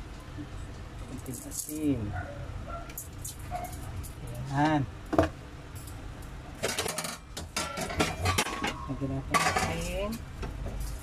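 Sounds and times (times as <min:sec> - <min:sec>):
kitchenware clinking on metal pot: 0:06.6 - 0:10.2.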